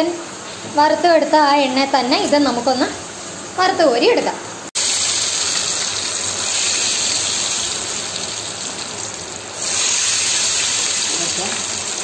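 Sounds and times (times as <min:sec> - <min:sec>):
potatoes deep-frying in oil: 0:04.8 - 0:12.0.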